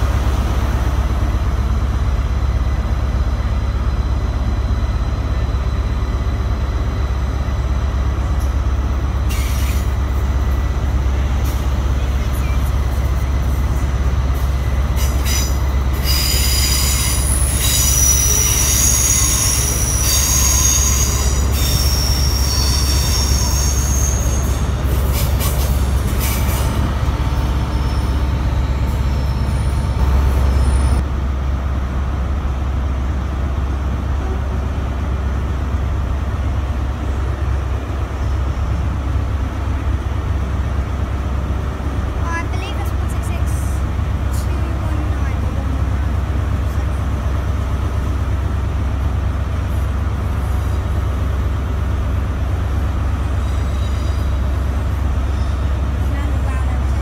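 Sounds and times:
electric train rumbling past: 0.0s - 57.0s
train wheels squealing: 9.2s - 10.2s, 14.8s - 31.0s, 50.4s - 51.1s, 53.2s - 56.0s.

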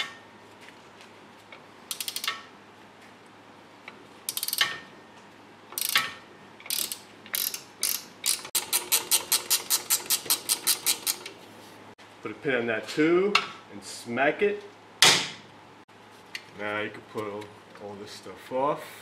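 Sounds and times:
ratchet wrench clicking: 1.9s - 2.4s, 4.3s - 4.8s, 5.8s - 11.3s.

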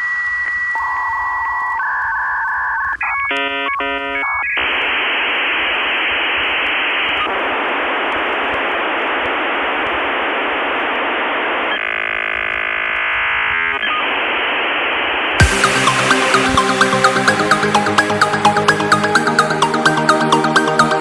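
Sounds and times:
radio static hiss: 0.0s - 17.6s
electronic music: 2.9s - 5.4s, 11.6s - 21.0s
buzzing tone: 3.0s - 17.6s.

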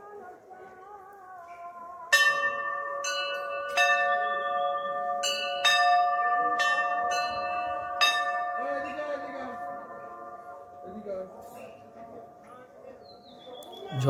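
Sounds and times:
temple bells ringing: 2.1s - 12.9s.

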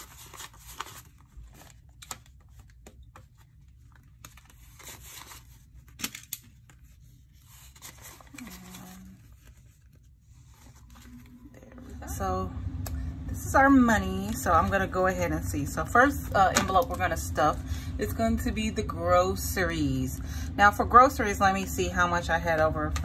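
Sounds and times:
paper banknotes rustling: 0.0s - 11.5s.

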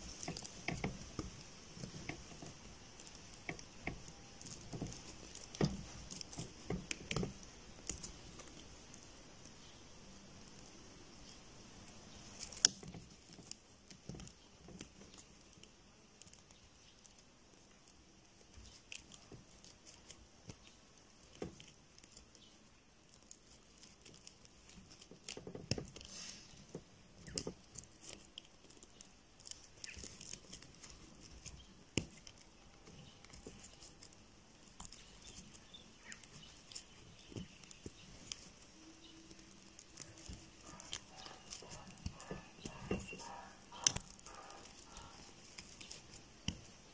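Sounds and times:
crochet hook clicks and yarn rustles: 0.0s - 9.7s, 11.8s - 46.9s.

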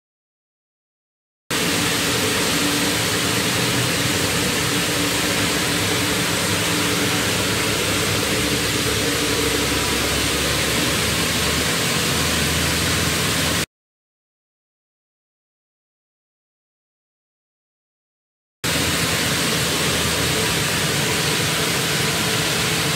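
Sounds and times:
low hum: 1.5s - 13.6s
machinery hiss: 1.5s - 13.7s, 18.7s - 22.9s.

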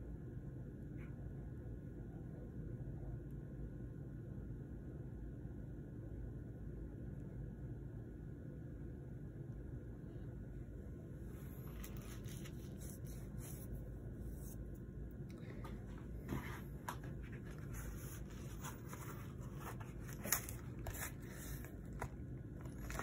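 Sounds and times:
low steady hum: 0.0s - 23.0s
packaging rustling and clicking: 16.8s - 23.0s.

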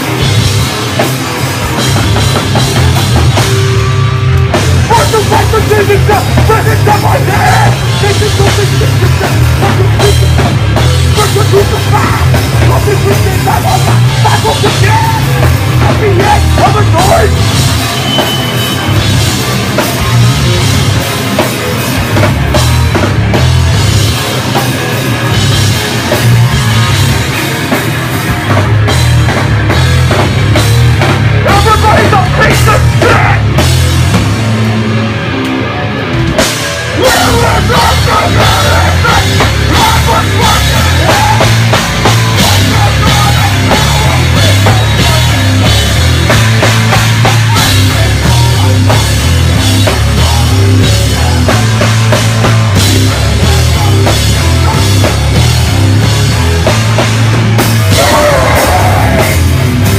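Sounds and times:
hardcore band playing: 0.0s - 59.9s
vocalist screaming: 5.0s - 9.0s, 31.5s - 33.5s, 36.9s - 41.6s, 57.9s - 59.5s.

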